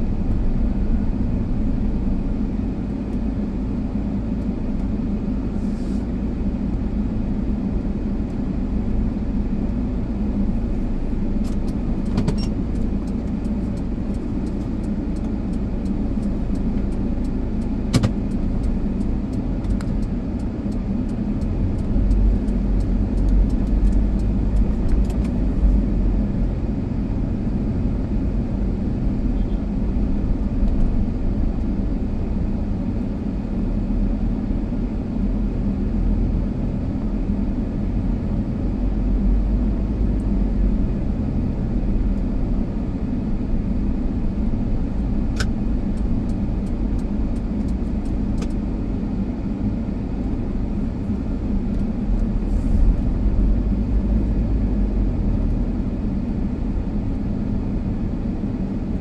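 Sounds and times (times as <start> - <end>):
car engine and road noise: 0.0 - 59.0
sharp ticks: 12.7 - 25.4.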